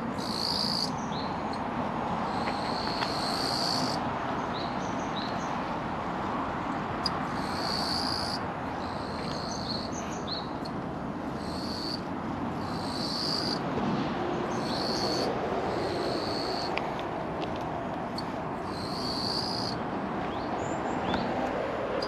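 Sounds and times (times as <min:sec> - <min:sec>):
insects buzzing: 0:00.0 - 0:01.6, 0:02.3 - 0:04.0, 0:07.0 - 0:10.8, 0:11.4 - 0:13.6, 0:14.5 - 0:16.8, 0:18.1 - 0:19.8
steady background hiss: 0:00.0 - 0:13.8, 0:14.4 - 0:22.0.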